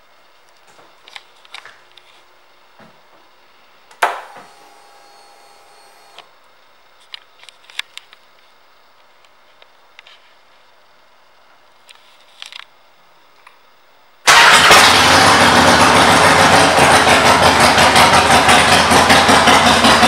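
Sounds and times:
electric hum: 0.0s - 14.3s.

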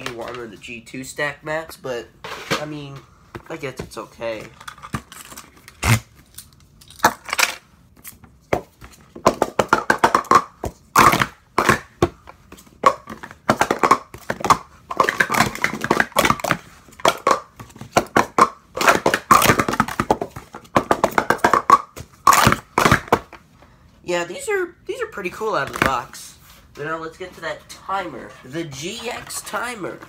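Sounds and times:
plastic cups clacking and rattling: 8.5s - 23.4s.

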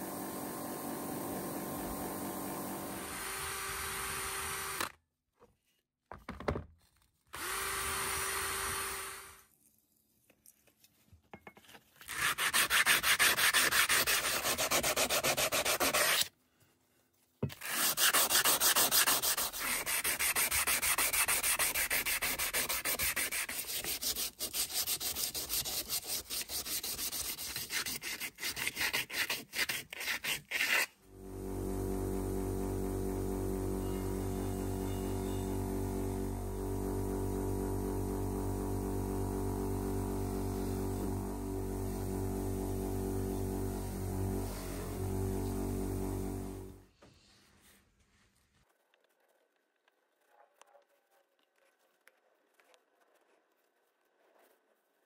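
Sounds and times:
sanding metal: 12.1s - 16.2s, 17.6s - 30.9s
steady hum: 31.1s - 46.9s.

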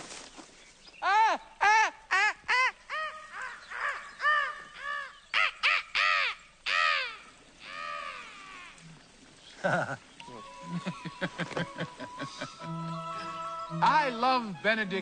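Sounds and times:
man's high bird-like cries: 1.0s - 6.4s, 10.2s - 14.5s.

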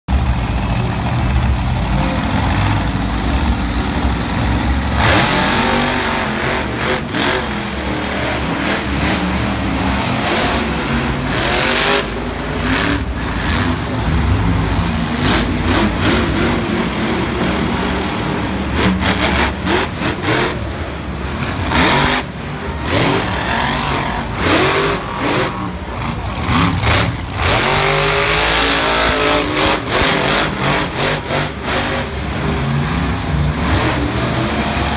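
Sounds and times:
monster truck engines revving: 0.0s - 34.9s
stadium crowd din: 0.1s - 34.9s.

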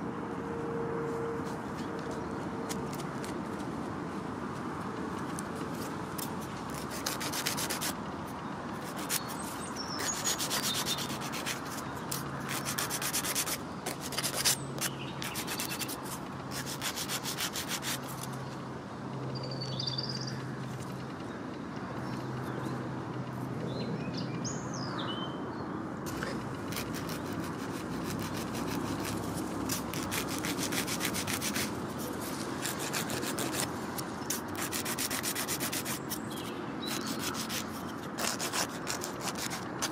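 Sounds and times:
nail file rasping on toenail: 6.2s - 8.0s, 8.8s - 18.3s, 26.1s - 39.9s.

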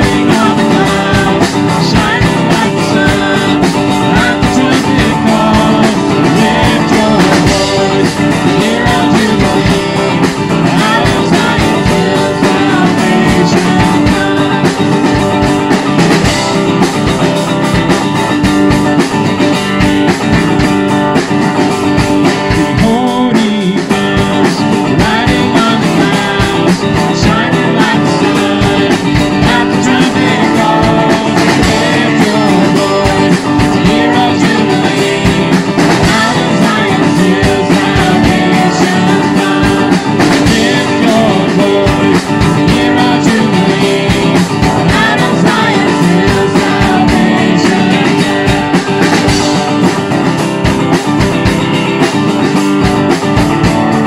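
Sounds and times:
person singing: 0.0s - 17.8s, 21.9s - 50.1s
rock band playing: 0.0s - 54.0s.

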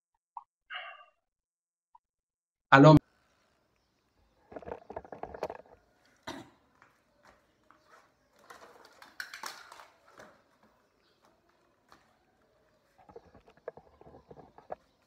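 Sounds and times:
wooden box knocking and rattling: 4.5s - 5.9s.

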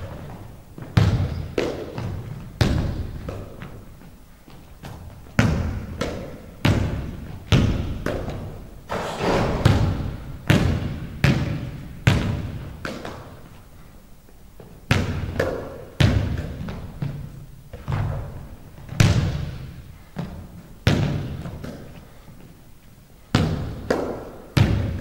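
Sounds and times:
basketball bouncing on hardwood floor: 0.1s - 3.7s, 4.8s - 13.2s.

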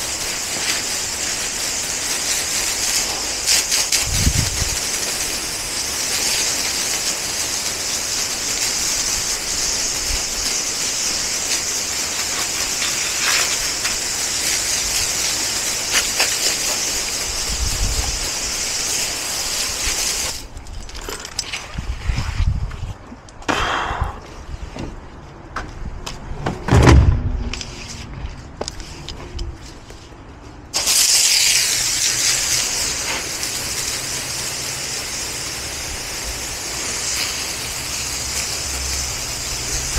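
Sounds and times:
pressure washer spraying concrete: 0.0s - 20.5s, 30.7s - 39.9s.

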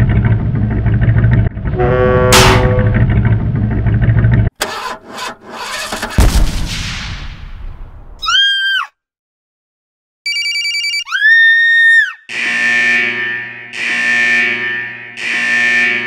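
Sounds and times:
bang: 2.3s - 3.0s, 5.9s - 8.1s
toy boat motor sputtering: 4.6s - 6.1s
quick run of beeps: 10.3s - 11.1s.

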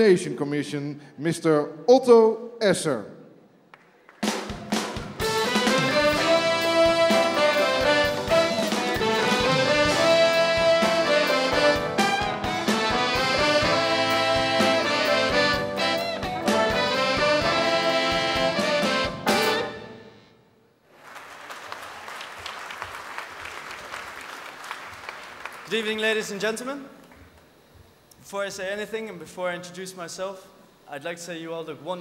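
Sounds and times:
live jazz band with horns: 4.7s - 20.1s
audience applause: 20.9s - 26.1s.

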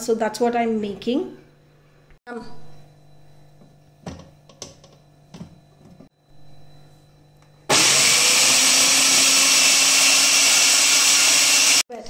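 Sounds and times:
food processor running: 7.7s - 11.9s.

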